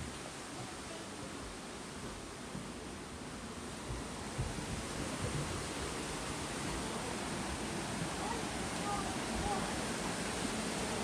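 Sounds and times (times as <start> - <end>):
waterfall rushing: 3.6 - 11.0.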